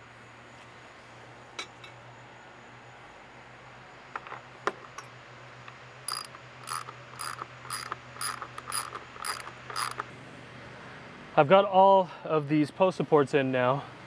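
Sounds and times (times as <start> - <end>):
loose clicks: 4.2 - 10.1
ratchet wrench strokes: 6.1 - 10.1.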